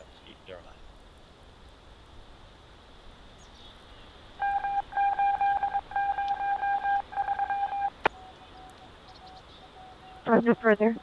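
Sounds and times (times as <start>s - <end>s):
faint broken tone: 4.4s - 11.0s
rapid electronic beeps: 4.4s - 11.0s.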